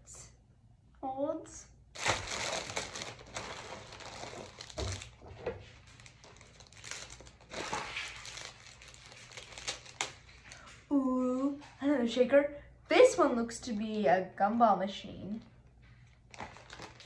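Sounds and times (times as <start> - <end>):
plastic packaging crinkling: 2.0 - 10.8, 16.0 - 17.0.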